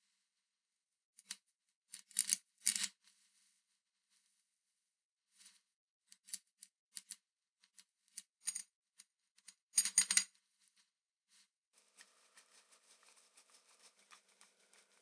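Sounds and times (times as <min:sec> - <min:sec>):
clicks of small metal parts: 0:01.2 - 0:02.9, 0:06.1 - 0:10.3.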